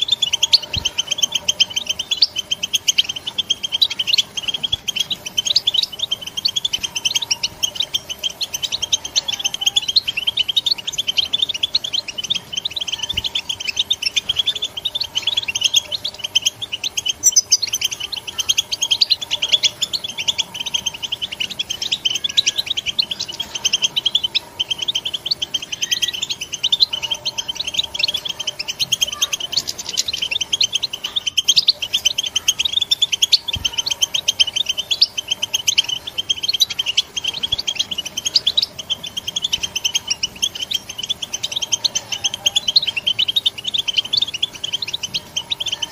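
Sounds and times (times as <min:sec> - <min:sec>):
goldfinch twittering chatter: 0:00.0 - 0:45.9.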